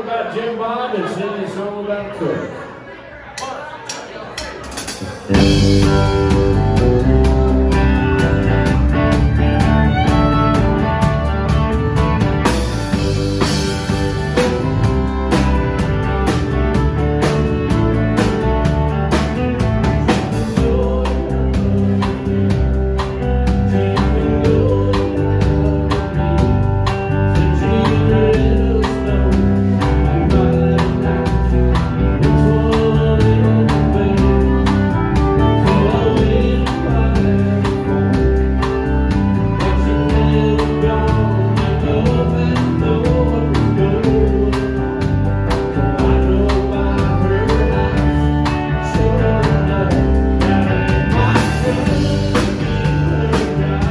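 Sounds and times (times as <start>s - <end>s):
live country band playing: 4.1s - 53.9s.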